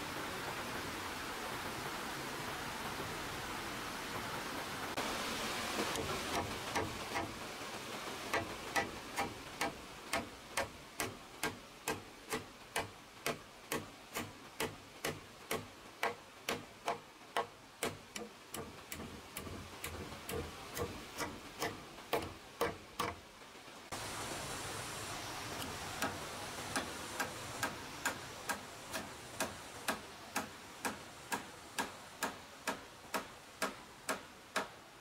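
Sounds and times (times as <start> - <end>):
light steady hiss: 0.0 - 35.0
sharp knocks: 8.3 - 23.2.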